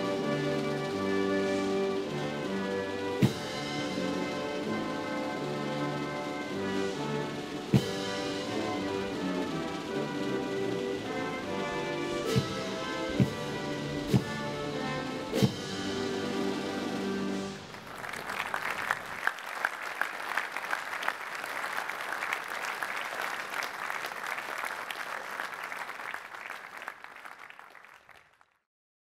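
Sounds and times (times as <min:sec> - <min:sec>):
crowd applauding: 0:17.6 - 0:28.6.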